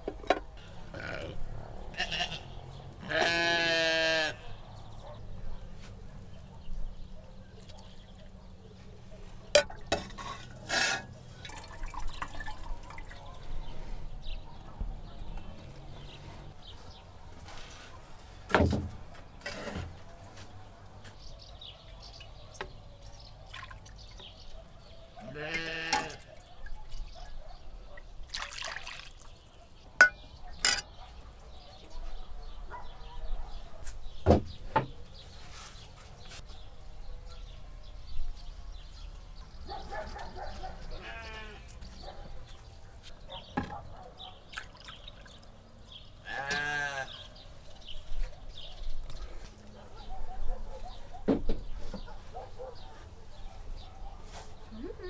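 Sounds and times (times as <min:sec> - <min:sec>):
farm animal bleating: 0:00.6 - 0:04.7, 0:25.2 - 0:26.3, 0:40.9 - 0:41.8, 0:46.2 - 0:47.3
liquid dripping: 0:11.4 - 0:13.3
metal utensils clinking on cauldron: 0:30.0 - 0:30.9.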